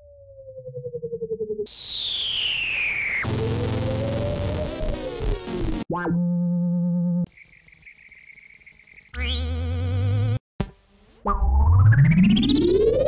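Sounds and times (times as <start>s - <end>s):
synthesizer tones and sweeps: 0.0s - 5.8s.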